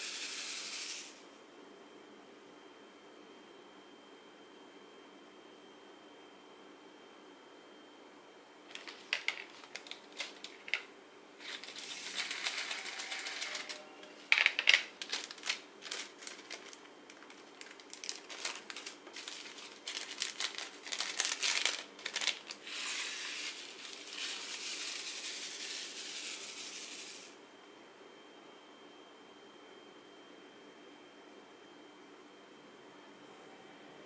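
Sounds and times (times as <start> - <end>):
plastic bag crinkling: 8.7 - 10.8, 11.4 - 25.6
plastic beads rattling and pouring: 8.8 - 10.8, 11.4 - 13.8, 14.4 - 27.3.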